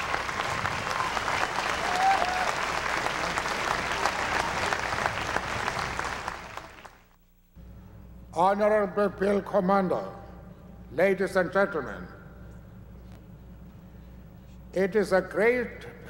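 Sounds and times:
large crowd applauding: 0.0 - 7.1.

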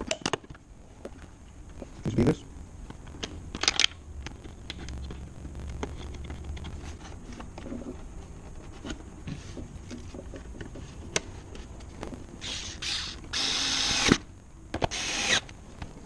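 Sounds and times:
cordless screwdriver whirring: 12.4 - 14.2, 14.9 - 15.5.

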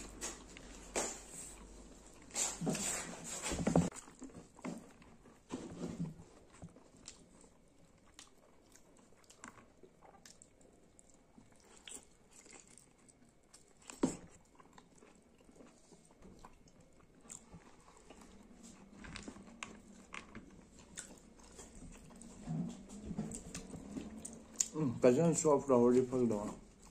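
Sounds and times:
person chewing: 3.8 - 25.0, 26.4 - 26.9.

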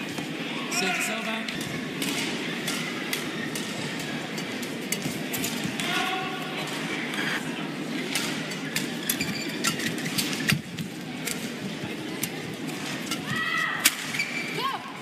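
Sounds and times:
shoes squeaking on court: 9.0 - 10.1.

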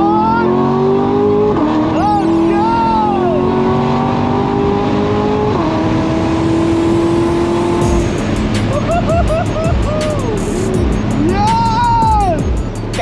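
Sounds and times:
car engine accelerating hard: 0.0 - 13.0.

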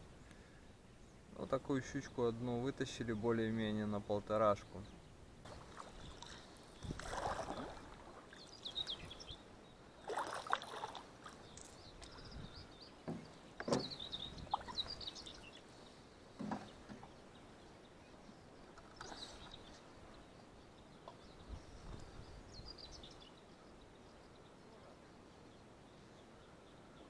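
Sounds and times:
paddle splashing in water: 5.4 - 9.3, 10.0 - 12.2, 13.1 - 15.5.

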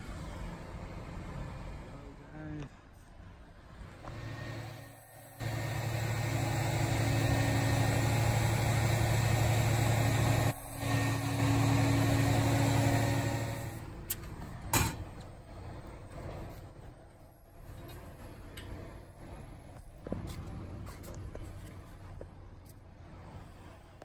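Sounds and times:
diesel engine running: 3.7 - 20.9.

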